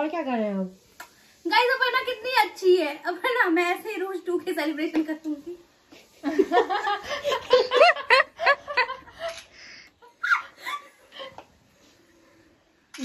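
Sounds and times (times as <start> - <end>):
women laughing: 6.2 - 9.4, 10.0 - 11.4.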